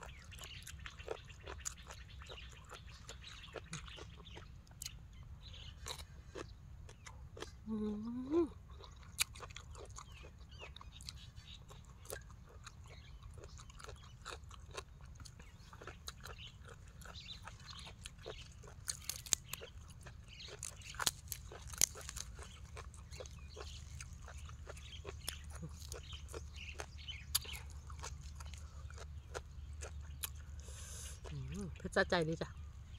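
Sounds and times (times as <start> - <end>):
chewing and crunching: 0.0 - 32.9
lettuce leaf tearing: 20.6 - 22.5
wet mouth clicks: 27.3 - 27.7.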